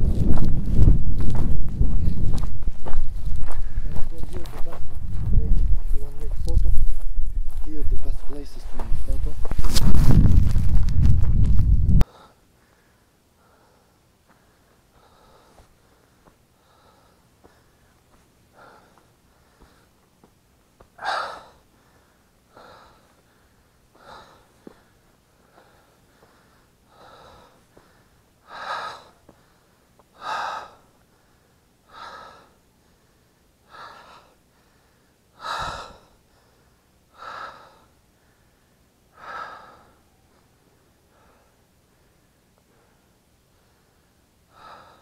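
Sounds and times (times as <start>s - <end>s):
person breathing hard: 3.3s - 4.1s, 12.0s - 20.0s, 21.0s - 45.0s.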